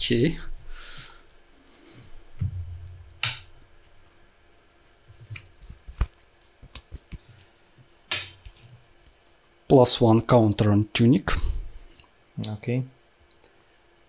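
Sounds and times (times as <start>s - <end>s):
low bump: 2.4s - 3.8s.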